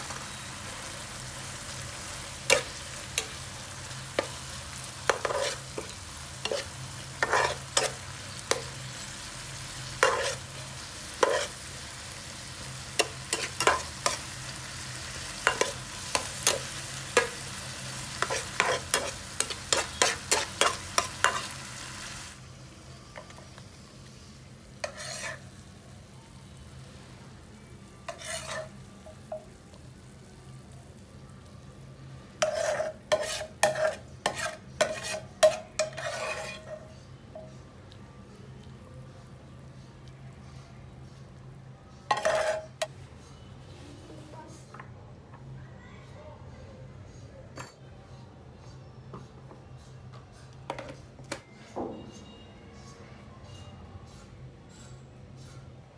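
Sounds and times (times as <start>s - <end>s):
oil sizzling in a frying pan: 0.0s - 36.8s
metal spatula scraping pan: 2.5s - 9.2s, 9.9s - 12.2s, 15.1s - 21.8s, 24.8s - 25.6s, 28.0s - 28.8s, 32.4s - 37.0s, 42.1s - 42.9s.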